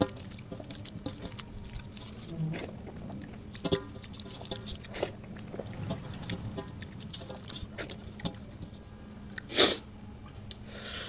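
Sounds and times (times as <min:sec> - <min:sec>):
fingers squishing rice: 0:00.0 - 0:08.7.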